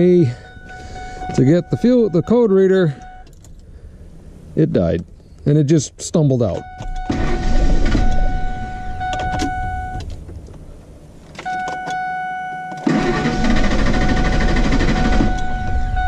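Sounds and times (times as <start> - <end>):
engine cranking on starter: 6.8 - 9.6, 12.7 - 16.0.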